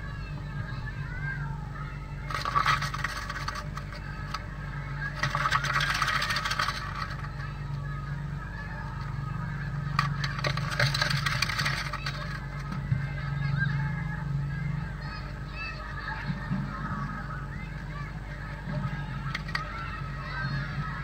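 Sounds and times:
low hum: 0.0s - 21.0s
bird pecking and scratching wood: 2.2s - 7.6s, 9.9s - 13.0s.

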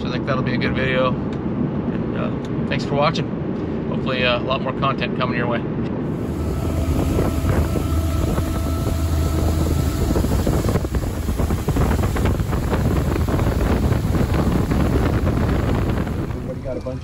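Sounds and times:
motorboat engine drone: 6.0s - 17.0s
wind buffeting microphone: 6.0s - 17.0s
rush of boat wake: 6.1s - 17.0s.

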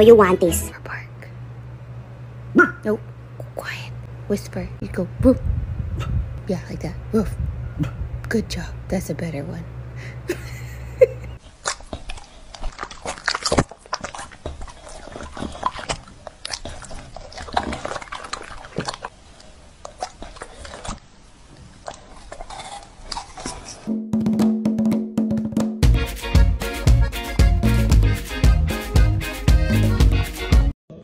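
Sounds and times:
dog crunching apple slices: 11.4s - 23.9s.

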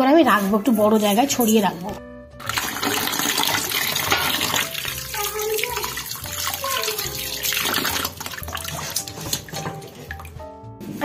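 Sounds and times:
water splashing into steel bowl: 2.4s - 10.4s.

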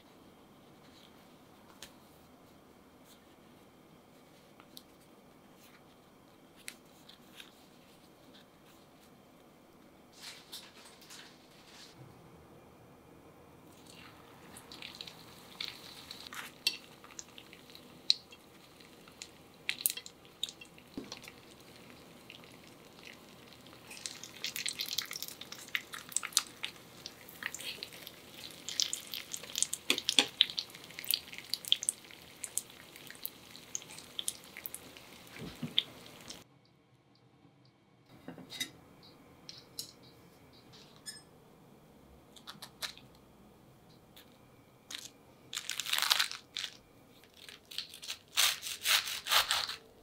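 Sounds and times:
spring rolls frying in hot oil: 13.8s - 36.4s.

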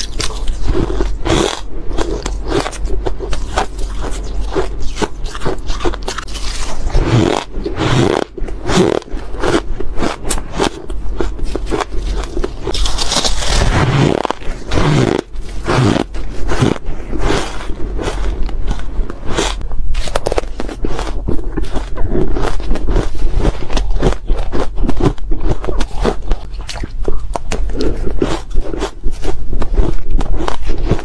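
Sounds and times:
ice being chewed: 0.0s - 31.0s
ice crumbling in fingers: 11.6s - 13.7s.

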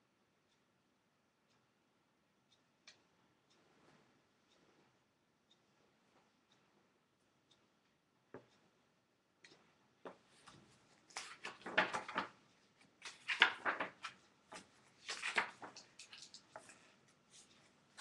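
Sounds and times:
rustling and clicking handling noise: 9.4s - 18.0s.

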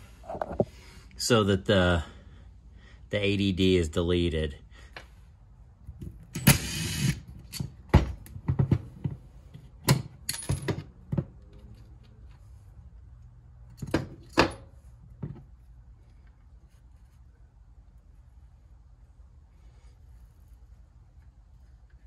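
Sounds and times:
impact driver running: 6.4s - 7.2s.

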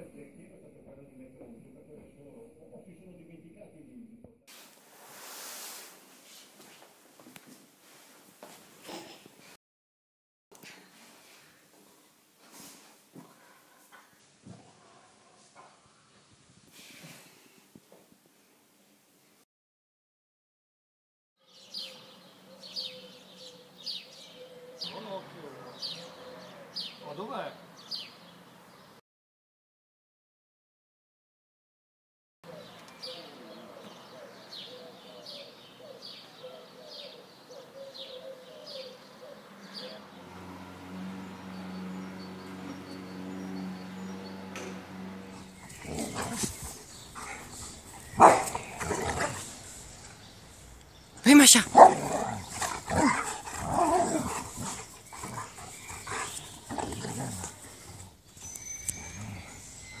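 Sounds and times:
bird warbling song: 21.4s - 27.2s, 32.5s - 40.2s, 45.4s - 60.0s
dogs growling: 45.2s - 50.3s, 51.6s - 58.3s, 58.9s - 60.0s
high falling bird chirp: 45.3s - 60.0s.

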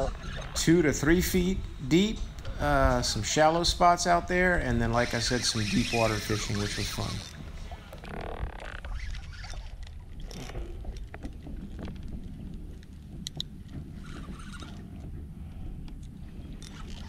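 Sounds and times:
wind and water rumble: 0.0s - 17.0s
fishing reel clicks and scrapes: 4.9s - 7.4s.

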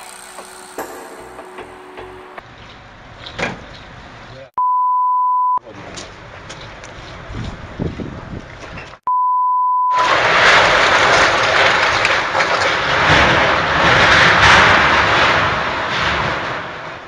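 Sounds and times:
steady bleep tone: 4.6s - 5.6s, 9.1s - 10.0s
strong wind buffeting microphone: 7.2s - 8.9s.

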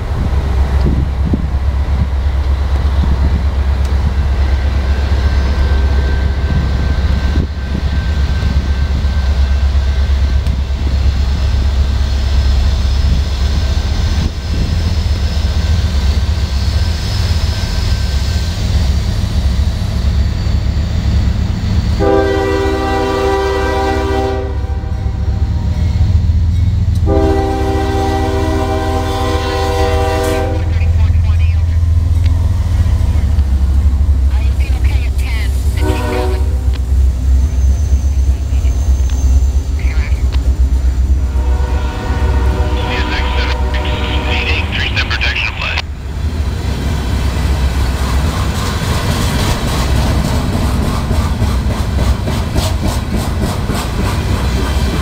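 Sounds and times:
wind buffeting microphone: 0.0s - 9.2s
steady low rumble: 0.0s - 17.2s, 30.6s - 55.0s
locomotive air horn blasts: 22.0s - 25.1s, 27.0s - 30.7s, 35.8s - 36.8s, 41.2s - 44.7s.

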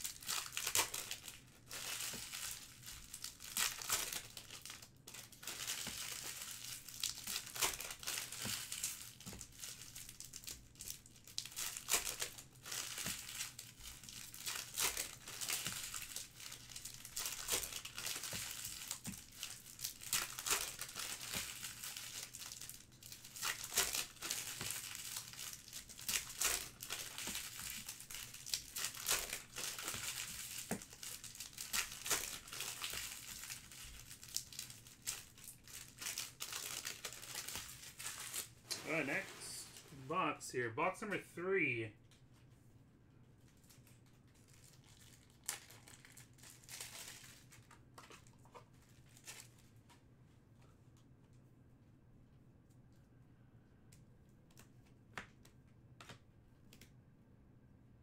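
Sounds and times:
foil wrappers crinkling and tearing: 0.0s - 40.0s, 43.4s - 49.7s.

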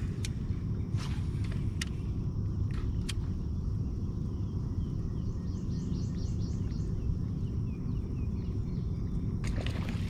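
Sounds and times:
low steady rumble: 0.0s - 10.0s
songbird chirping: 0.0s - 10.0s
water splashing: 9.4s - 10.0s.

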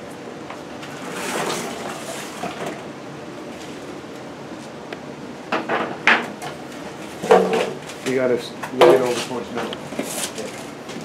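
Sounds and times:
dishwasher scraping: 0.9s - 2.8s.

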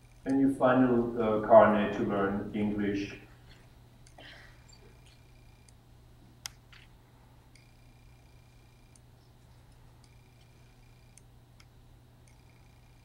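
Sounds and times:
low electrical hum: 0.0s - 13.0s
faint ticks: 7.5s - 13.0s.

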